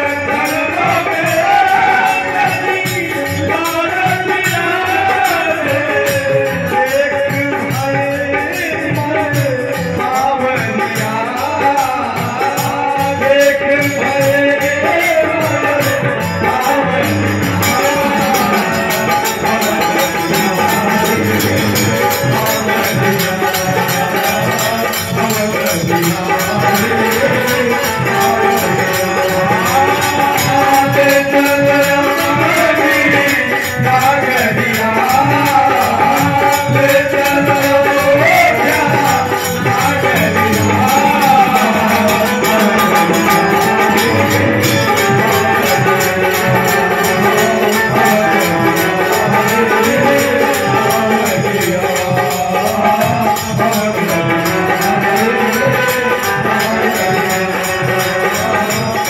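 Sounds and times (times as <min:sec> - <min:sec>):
dholak drum: 0:00.0 - 0:59.0
jingling hand percussion: 0:00.0 - 0:59.0
men singing into microphones: 0:00.0 - 0:59.0
amplified keyed string instrument: 0:15.0 - 0:59.0.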